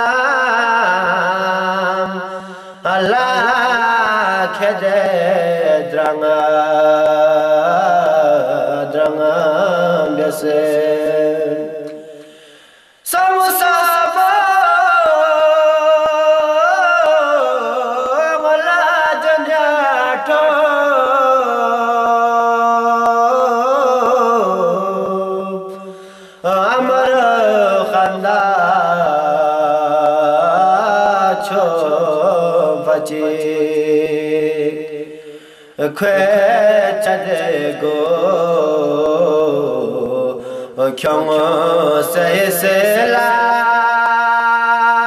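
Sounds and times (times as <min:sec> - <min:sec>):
man chanting devotional song: 0:00.0 - 0:45.0.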